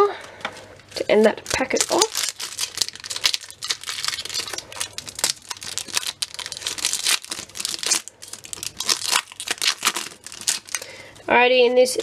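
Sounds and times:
foil packet crinkling and tearing: 0.9 - 12.0.

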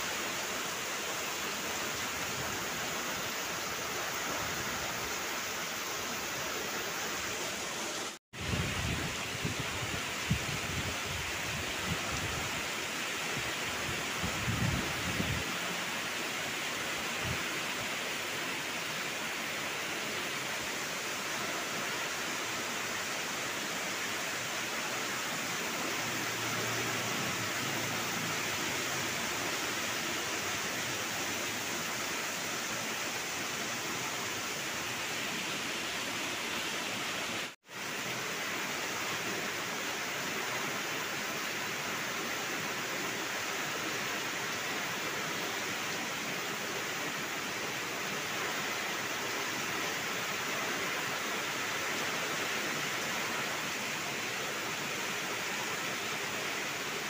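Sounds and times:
wind: 0.0 - 57.0
heavy rain on roofs: 23.6 - 34.2, 34.8 - 39.2.

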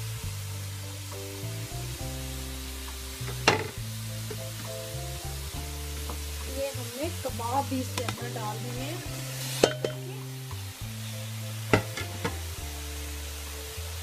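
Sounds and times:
background music held chords: 0.0 - 14.0.

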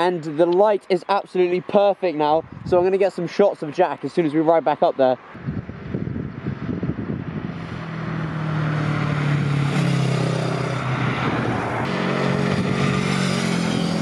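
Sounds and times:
wind noise: 1.7 - 3.0, 5.3 - 14.0
motorcycle engine running: 8.0 - 14.0.

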